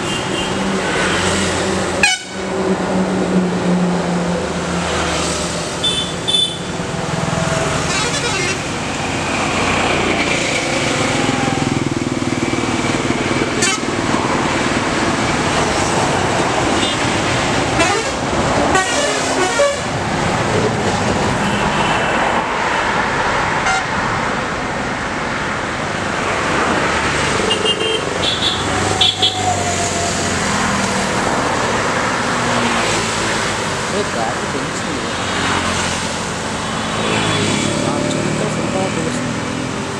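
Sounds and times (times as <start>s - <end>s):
highway traffic passing: 0.0s - 39.9s
vehicle horns tooting: 2.0s - 2.4s, 5.8s - 6.7s, 7.8s - 8.7s, 13.6s - 13.9s, 17.8s - 19.9s, 23.6s - 23.9s, 27.5s - 29.4s.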